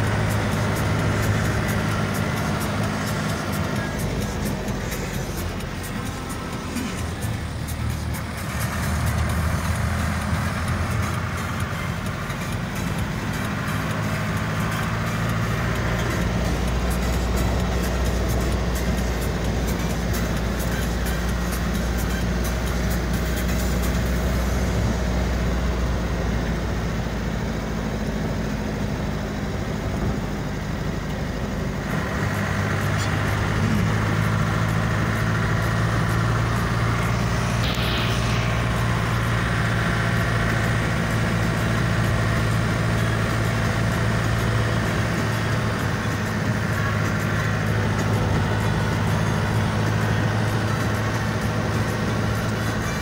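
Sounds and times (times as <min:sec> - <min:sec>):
road noise: 0:00.0 - 0:53.0
vehicle engine: 0:00.0 - 0:53.0.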